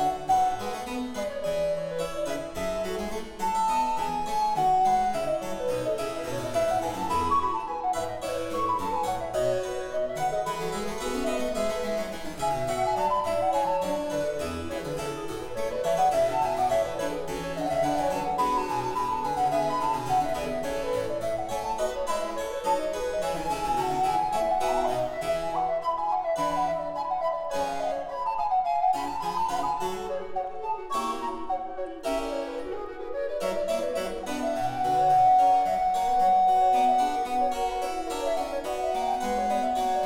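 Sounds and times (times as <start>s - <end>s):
harpsichord plucked accompaniment: 0.0s - 40.0s.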